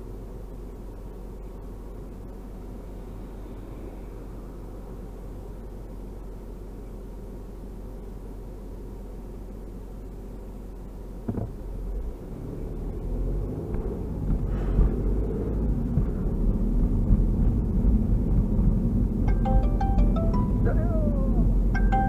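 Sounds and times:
car engine rumble: 0:00.0 - 0:22.0
road noise inside car: 0:00.0 - 0:22.0
chime-like musical tones: 0:19.3 - 0:20.8, 0:21.8 - 0:22.0.

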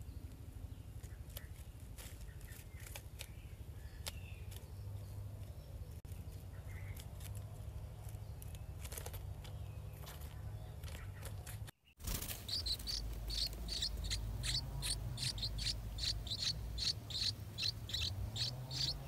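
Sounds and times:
low hum: 0:12.2 - 0:19.0.

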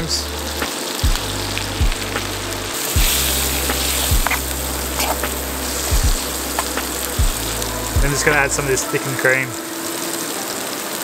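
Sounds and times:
music with kick-drum beat and bass: 0:00.0 - 0:08.8
mushrooms sizzling in a pan: 0:02.8 - 0:11.0.

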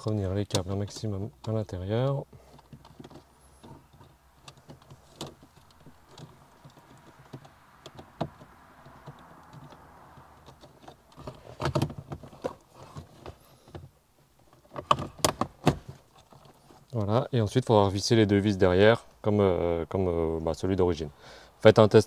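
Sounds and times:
light rustling: 0:00.0 - 0:17.2
plastic knocks: 0:02.4 - 0:13.9.

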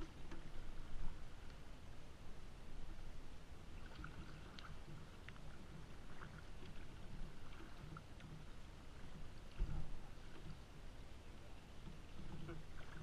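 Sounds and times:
paddle splashing in water: 0:03.7 - 0:13.0.

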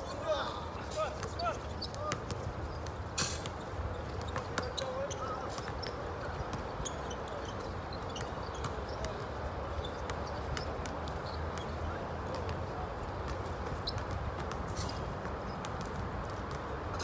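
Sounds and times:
basketballs bouncing: 0:01.2 - 0:07.1, 0:08.0 - 0:17.0.

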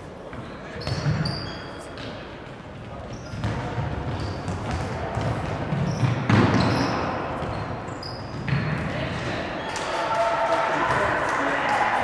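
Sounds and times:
shoes squeaking: 0:00.4 - 0:02.0, 0:02.9 - 0:08.6
ball kicked and bouncing on wood floor: 0:02.8 - 0:06.8, 0:07.4 - 0:08.9.

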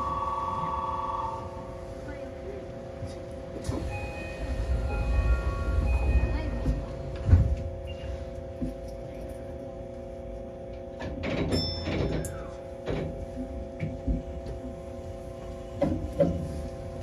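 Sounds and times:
train electrical hum: 0:00.0 - 0:17.0
sliding doors clunking and rattling: 0:05.7 - 0:07.8, 0:15.7 - 0:16.9.

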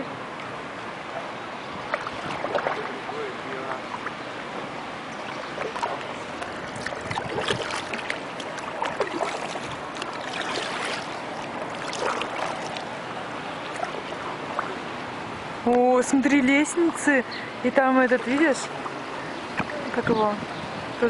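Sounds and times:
paddle splashing in water: 0:01.1 - 0:15.2.

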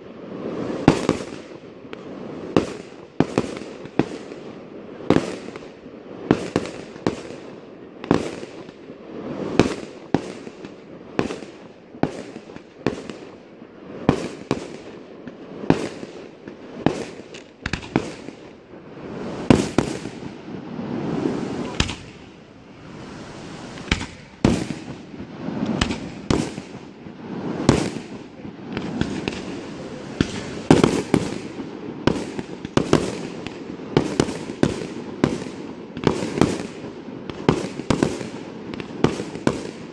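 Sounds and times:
firework shells bursting: 0:19.1 - 0:26.9, 0:27.5 - 0:34.8.

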